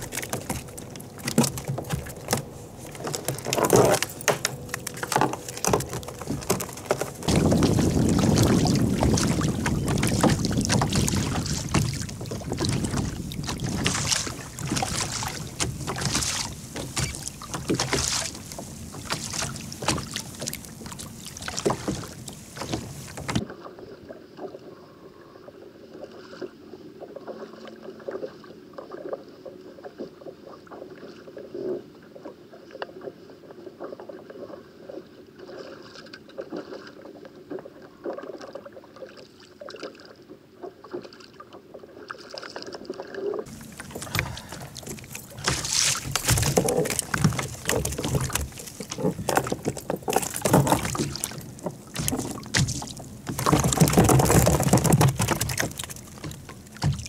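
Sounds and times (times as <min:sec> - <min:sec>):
water lapping against kayak hull: 0:00.0 - 0:25.0, 0:25.8 - 0:57.0
wind buffeting microphone: 0:06.1 - 0:23.4.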